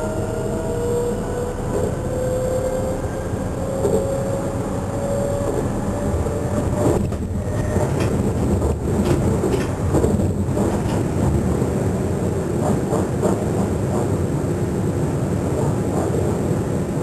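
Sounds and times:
traction motor whine: 0:00.0 - 0:08.4
train wheels rumbling on rails: 0:00.0 - 0:17.0.

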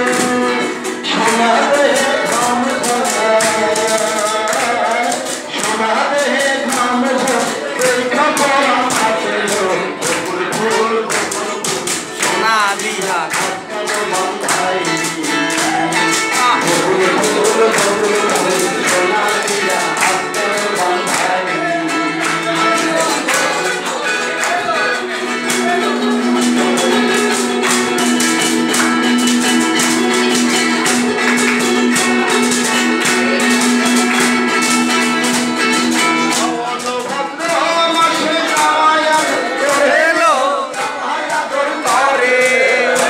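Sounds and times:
man singing into a microphone: 0:00.0 - 0:28.2, 0:36.1 - 0:43.0
strummed acoustic guitar: 0:00.0 - 0:43.0
ukulele: 0:00.0 - 0:43.0.

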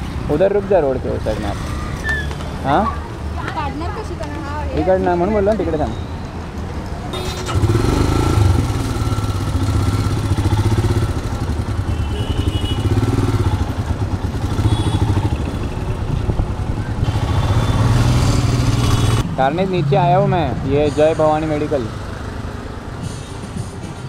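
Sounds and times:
motorcycle engine running: 0:07.4 - 0:19.2.

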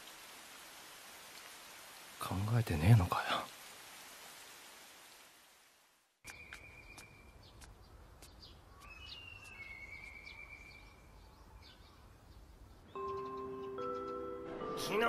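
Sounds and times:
rain hiss: 0:00.0 - 0:07.8
birds chirping: 0:06.2 - 0:15.0
high bird whistles: 0:08.8 - 0:11.0.

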